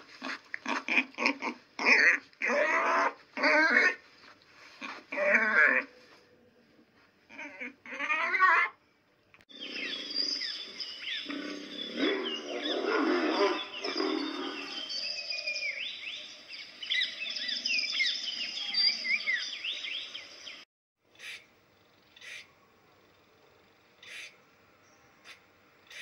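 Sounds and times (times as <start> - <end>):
birds chirping: 9.4 - 20.6, 24.0 - 26.0
big cat growling: 9.5 - 15.0.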